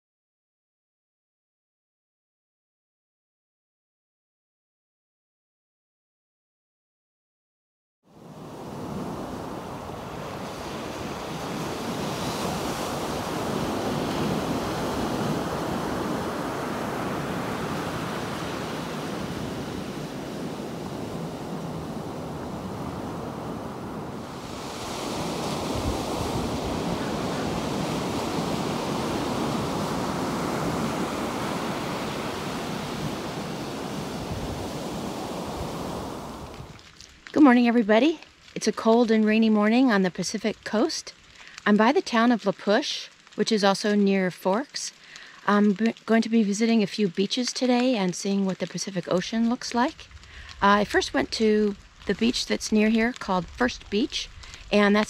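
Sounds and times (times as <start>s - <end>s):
surf breaking on shore: 8.1s - 37.3s.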